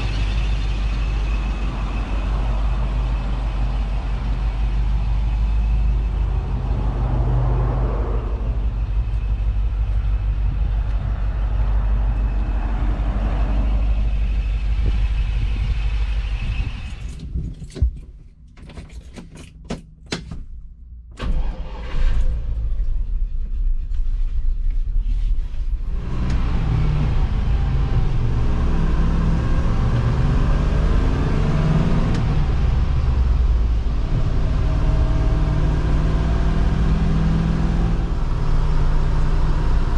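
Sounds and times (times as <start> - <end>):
engine idling low rumble: 0.0 - 18.6, 19.8 - 39.9
truck engine driving: 0.0 - 39.9.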